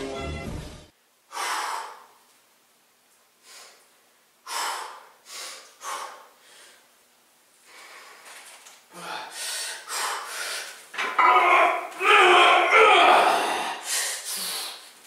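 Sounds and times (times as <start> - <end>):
man breathing sharply: 1.3 - 2.2, 3.4 - 6.9, 7.6 - 10.8, 13.3 - 15.0.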